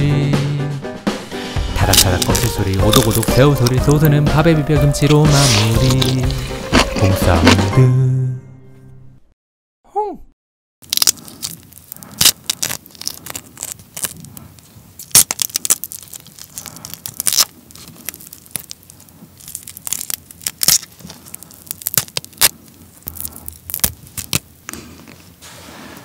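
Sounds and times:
shrimp shell cracking: 1.8s - 4.0s, 5.3s - 7.6s, 10.8s - 24.7s.

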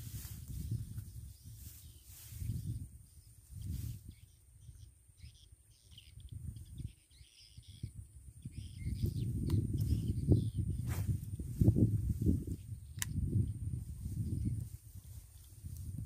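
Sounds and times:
birds chirping: 0.5s - 11.7s.

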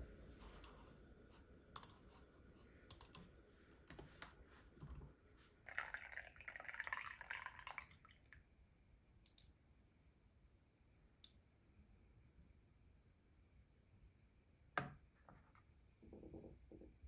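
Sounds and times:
tea pouring into metal cup: 5.6s - 8.4s.

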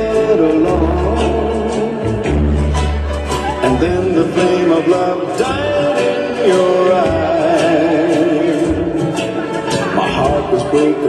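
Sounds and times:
person singing over a band: 3.4s - 11.0s.

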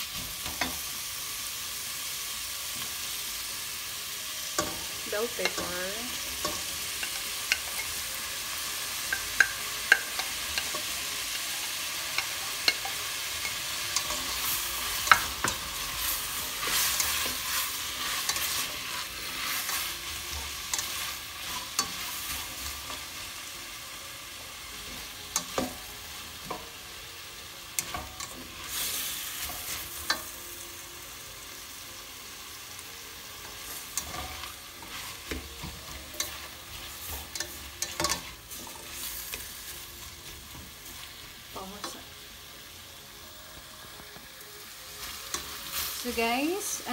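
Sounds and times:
vegetables sizzling in a pan: 0.0s - 46.9s
spatula scraping and clicking on pan: 12.1s - 23.1s, 33.5s - 41.0s.

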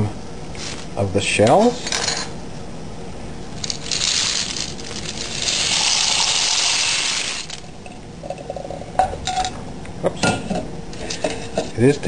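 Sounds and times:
dry pasta pouring into pot: 3.5s - 7.8s.

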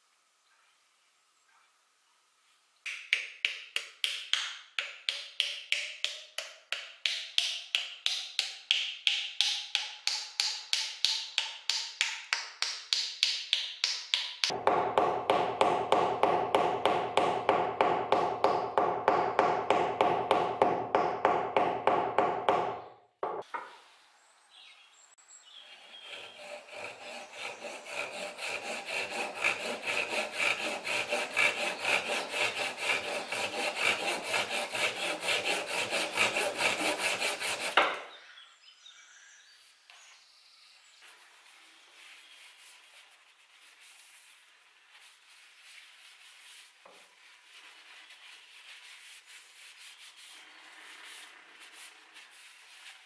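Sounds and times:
mallet tapping wooden wedge: 2.9s - 23.5s
handsaw cutting wood: 14.5s - 22.7s, 25.9s - 38.0s.

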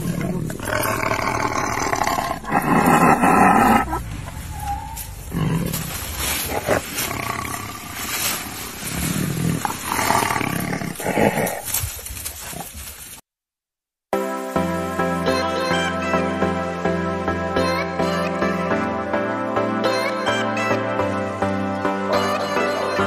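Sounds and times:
tiger roaring and growling: 0.0s - 12.8s.

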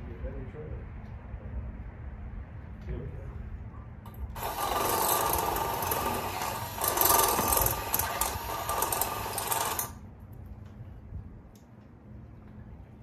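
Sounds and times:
small power tool running: 4.4s - 10.0s.

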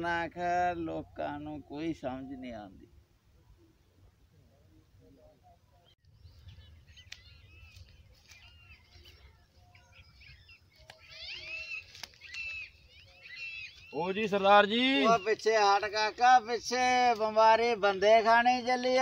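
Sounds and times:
birds chirping: 0.0s - 19.0s
faint clicks: 7.0s - 8.5s.

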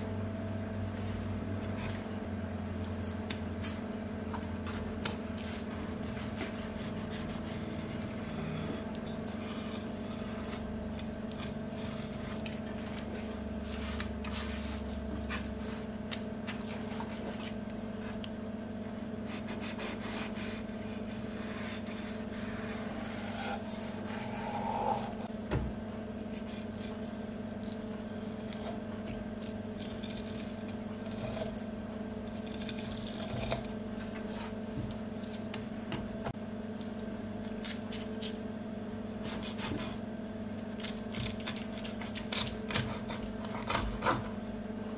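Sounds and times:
steady low hum: 0.0s - 44.9s
knife scraping fish bone: 32.3s - 34.6s, 40.6s - 44.4s.

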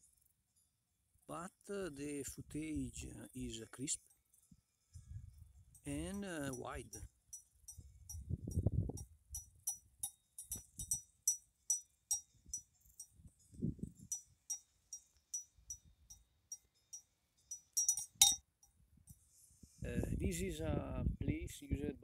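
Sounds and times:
cowbell clanking: 5.8s - 8.2s, 9.4s - 13.2s, 14.0s - 18.4s.

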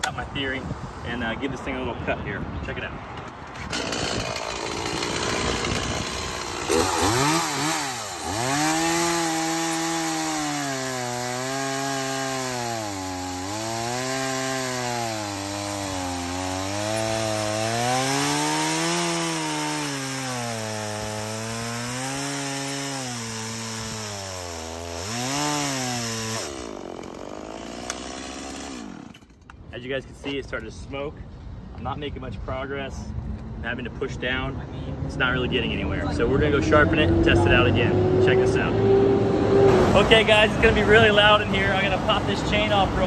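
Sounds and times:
chainsaw bogging while cutting log: 3.6s - 29.3s.

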